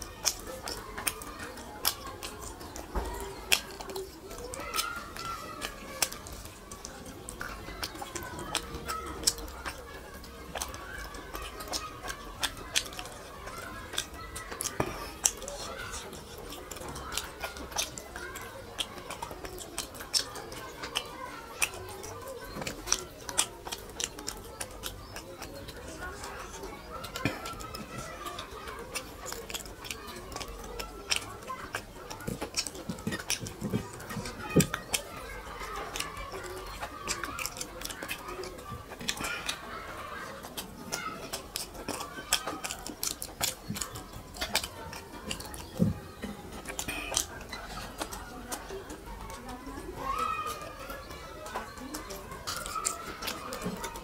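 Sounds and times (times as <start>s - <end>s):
fingers squishing rice: 0.0s - 54.0s
wet smacking and chewing: 0.0s - 54.0s.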